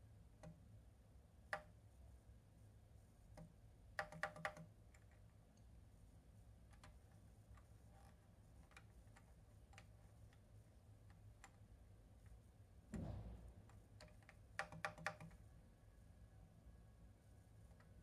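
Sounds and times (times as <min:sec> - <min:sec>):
low bump: 0:12.9 - 0:13.8.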